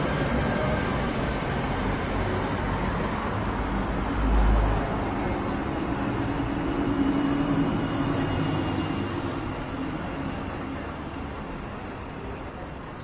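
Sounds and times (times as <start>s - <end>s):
engine drone: 0.0s - 13.0s
street traffic noise: 0.0s - 13.0s.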